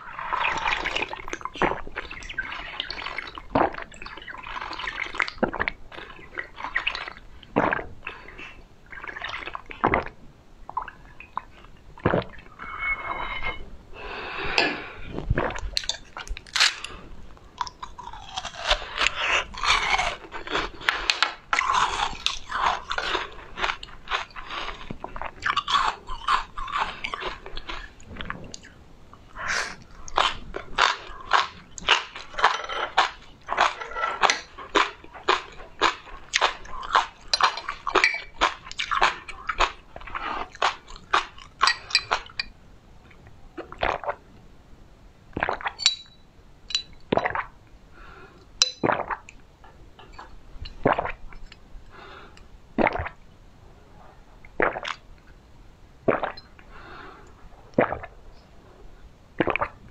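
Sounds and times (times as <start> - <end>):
person chewing crunchy food: 15.2 - 28.8, 29.8 - 42.4.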